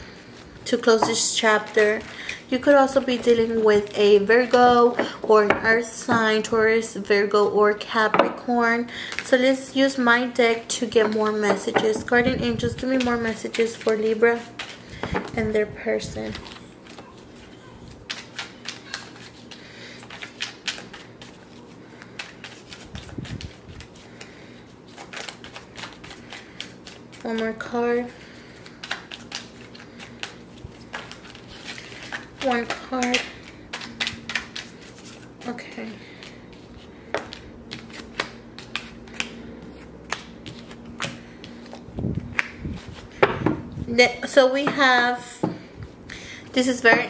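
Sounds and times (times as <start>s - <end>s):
faint steady hum: 0.0s - 47.0s
cards being shuffled: 12.8s - 15.4s, 16.2s - 43.3s
cards clicking and snapping: 37.2s - 39.4s.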